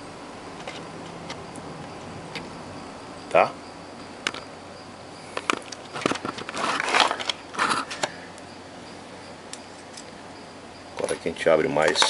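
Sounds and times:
scraping and rustling: 5.4s - 8.2s.

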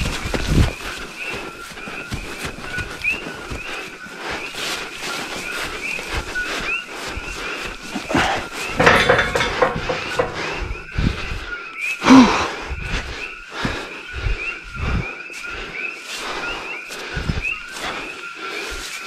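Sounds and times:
footsteps through grass and brush: 0.0s - 8.8s, 12.8s - 19.0s
heavy strained breathing: 6.2s - 18.9s.

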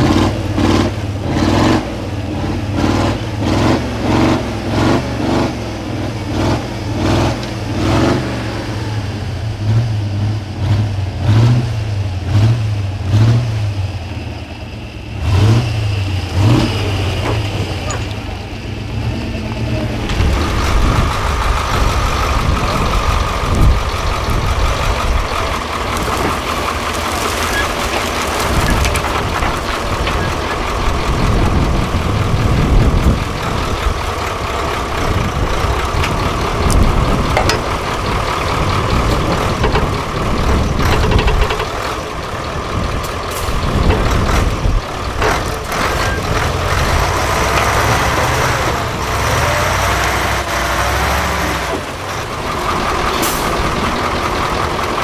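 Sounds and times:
truck engines rumbling under load: 0.0s - 55.0s.

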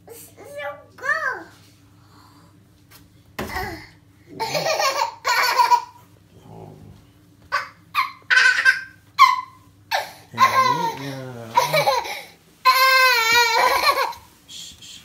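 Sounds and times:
toddler laughing: 3.5s - 6.1s, 7.5s - 14.3s.

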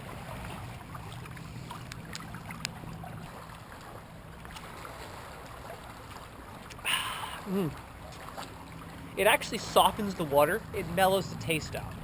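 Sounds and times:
water lapping on rocky shore: 0.0s - 12.0s.

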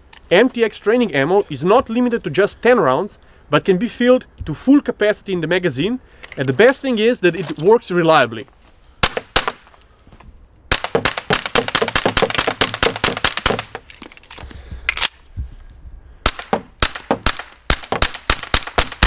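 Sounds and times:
pistol shots: 9.0s - 9.6s, 10.7s - 13.8s, 16.2s - 19.0s.

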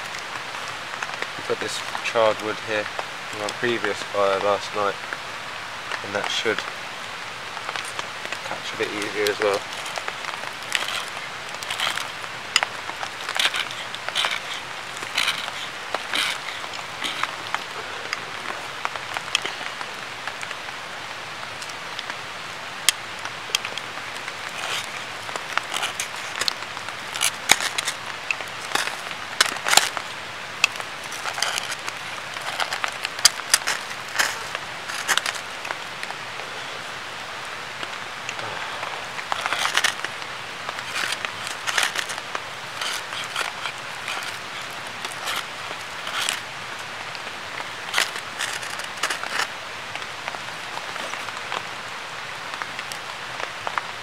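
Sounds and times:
background hiss: 0.0s - 54.0s
knife scraping ferro rod: 8.7s - 17.7s, 24.4s - 30.0s, 30.6s - 35.4s, 39.3s - 46.5s, 47.8s - 49.5s.

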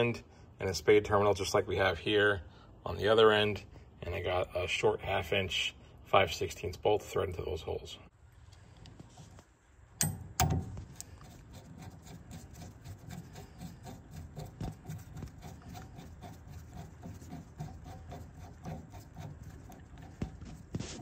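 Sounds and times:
sharp knocks: 10.0s - 10.9s.

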